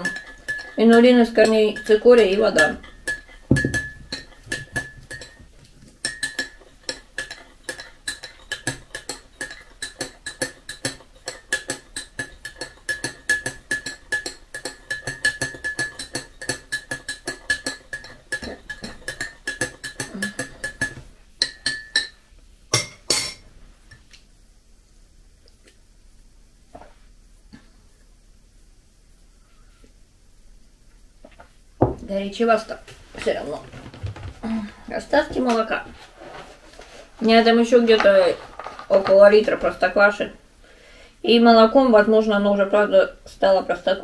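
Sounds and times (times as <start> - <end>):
teaspoon clinking in glass mug: 0.0 - 5.4, 6.0 - 23.4.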